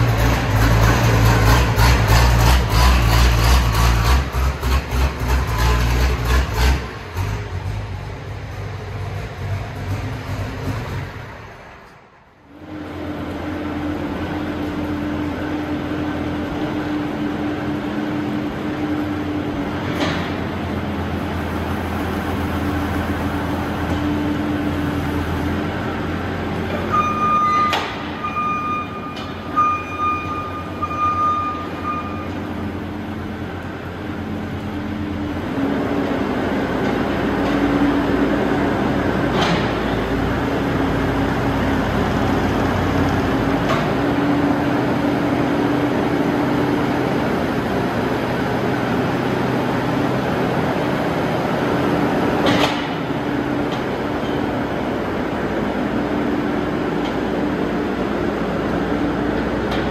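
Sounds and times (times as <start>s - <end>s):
diesel engine running: 0.0s - 59.9s
short high beeps: 26.9s - 32.4s.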